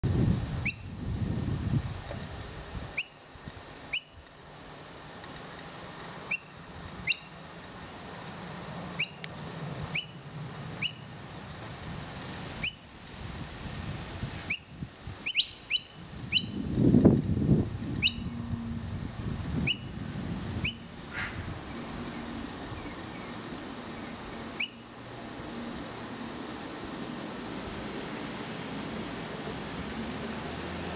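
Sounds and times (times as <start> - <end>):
fledgling bird calling: 14.5 - 16.6, 18.0 - 18.4, 20.6 - 21.5, 24.5 - 24.9.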